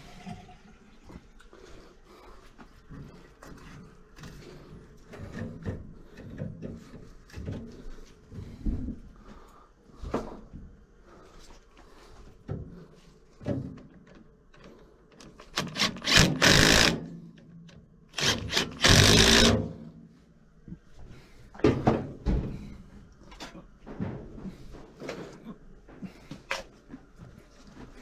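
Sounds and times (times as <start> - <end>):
cordless drill running: 15.6 - 17.0, 18.2 - 19.6.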